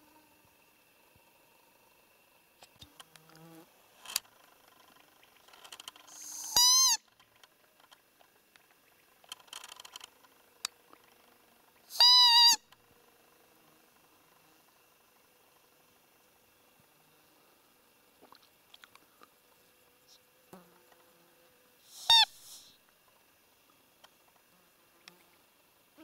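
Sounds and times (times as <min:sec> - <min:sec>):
faint clicks and rustles: 0:02.6 - 0:06.2, 0:07.1 - 0:11.3
deer call squeaks: 0:06.1 - 0:07.2, 0:11.9 - 0:12.7, 0:21.9 - 0:22.7.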